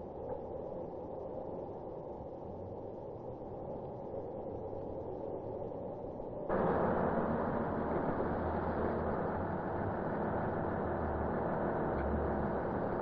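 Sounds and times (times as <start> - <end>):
heavy machinery engine rumble: 6.5 - 13.0.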